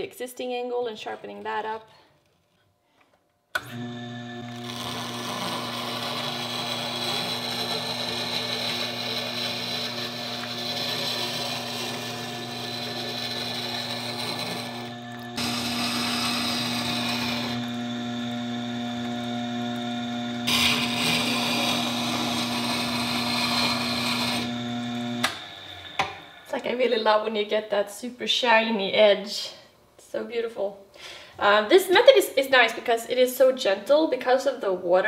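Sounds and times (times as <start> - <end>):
sharpening machine motor humming: 3.6 - 26.5
steel grinding against stone: 3.8 - 18.3, 20.4 - 26.6.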